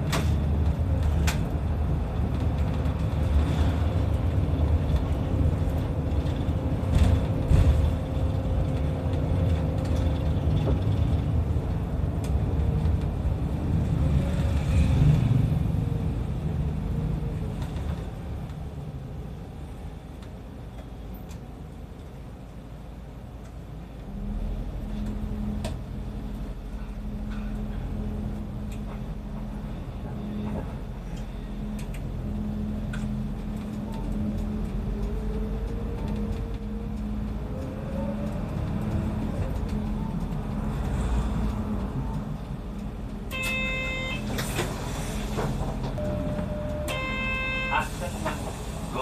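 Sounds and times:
bus engine drone: 0:00.0 - 0:49.0.

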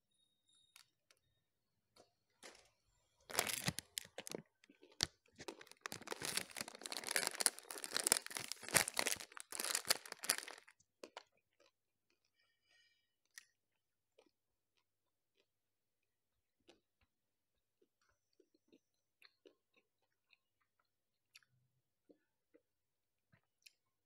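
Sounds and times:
plastic wrapper crinkling: 0:03.3 - 0:10.7.

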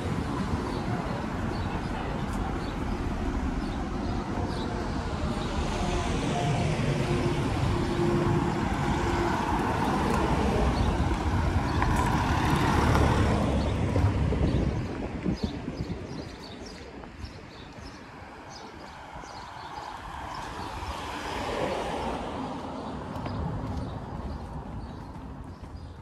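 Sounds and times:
cars driving past: 0:00.0 - 0:15.1.

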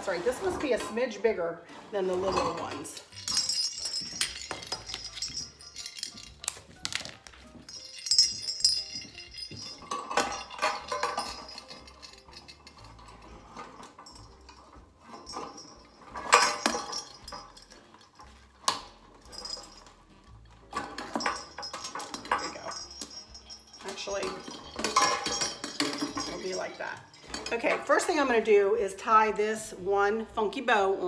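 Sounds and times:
strand of bells rattling: 0:02.9 - 0:27.6
bells knocking on metal lantern: 0:07.5 - 0:13.0.

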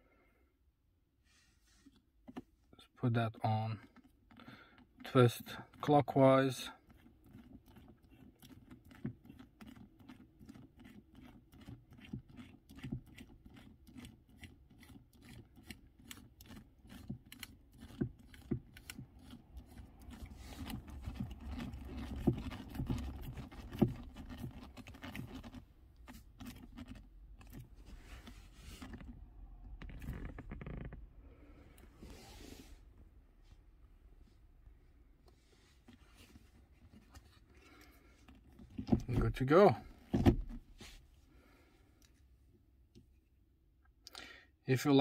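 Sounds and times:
hand rubbing lever boot: 0:06.8 - 0:34.4, 0:35.2 - 0:42.3
gear knob clicking: 0:14.8 - 0:27.7.

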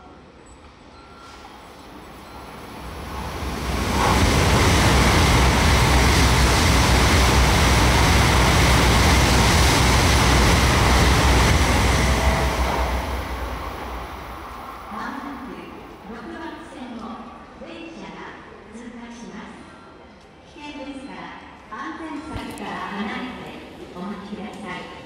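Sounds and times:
train passing at speed: 0:01.2 - 0:16.7.

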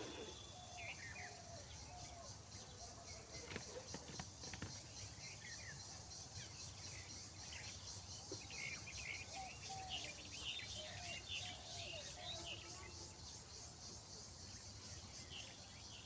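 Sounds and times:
birds chirping: 0:00.0 - 0:02.0
insect trill: 0:00.0 - 0:16.0.

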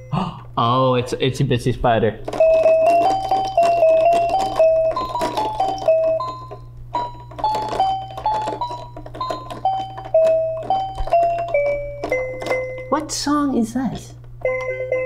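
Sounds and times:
toy beeping electronic melody: 0:02.3 - 0:13.0, 0:14.4 - 0:15.0.

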